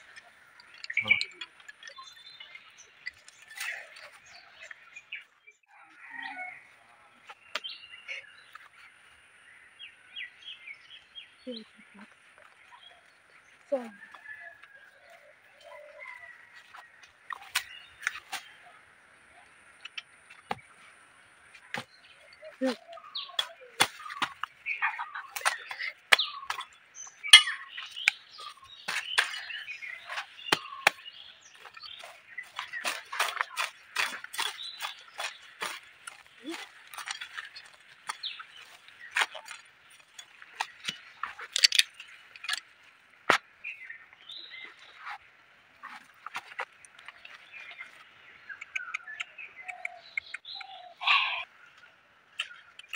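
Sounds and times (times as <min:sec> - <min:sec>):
birds calling faintly: 0:00.0 - 0:52.9
bamboo sticks clicking and snapping: 0:17.0 - 0:18.5, 0:22.6 - 0:42.7, 0:52.3 - 0:52.9
weeds being pulled: 0:27.3 - 0:42.6.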